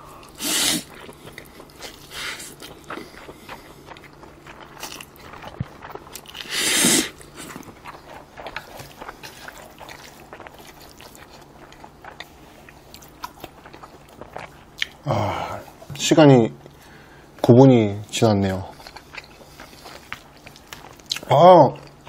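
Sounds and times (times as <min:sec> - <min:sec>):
slurping noodles: 0:00.2 - 0:01.0, 0:06.4 - 0:07.7
wet chewing clicks: 0:00.2 - 0:15.0, 0:18.7 - 0:22.0.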